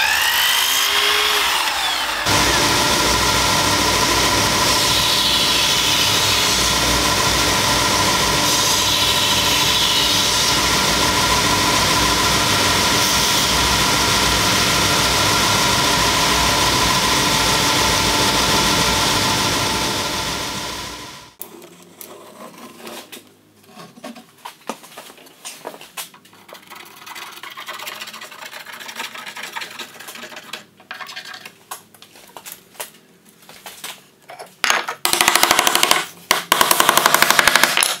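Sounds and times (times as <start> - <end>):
belt sander humming: 0.0 - 21.4.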